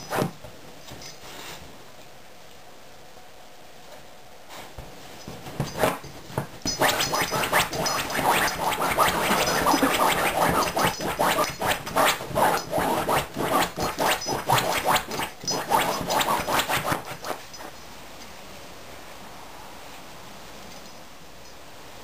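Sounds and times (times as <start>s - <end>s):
dog scratching sofa cushions: 5.6s - 17.7s.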